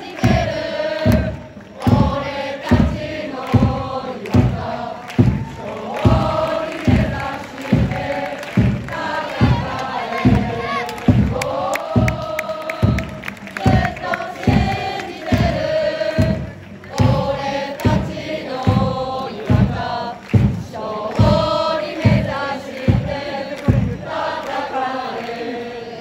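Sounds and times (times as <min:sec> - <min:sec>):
drum beating steadily: 0:00.0 - 0:25.2
crowd singing a chant: 0:00.0 - 0:26.0.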